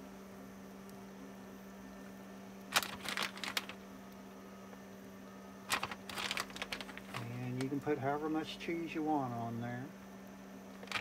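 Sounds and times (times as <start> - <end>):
low steady hum: 0.0 - 11.0
plastic bag rustling: 2.7 - 3.8, 5.7 - 7.7, 10.8 - 11.0.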